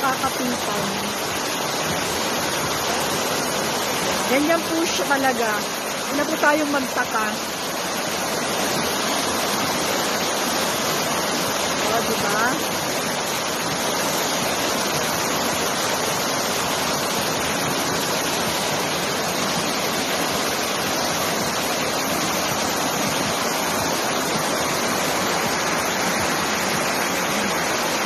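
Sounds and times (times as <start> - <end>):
floodwater rushing down waterfall: 0.0 - 28.0.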